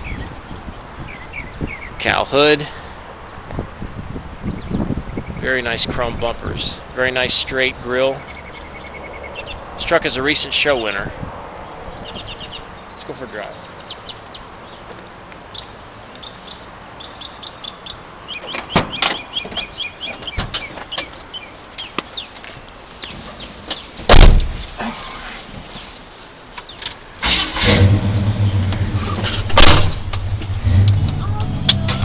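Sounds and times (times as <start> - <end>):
birds chirping: 0.0 - 27.5
truck door shutting: 24.0 - 24.7, 27.2 - 32.0
truck engine starting and running: 26.9 - 32.0.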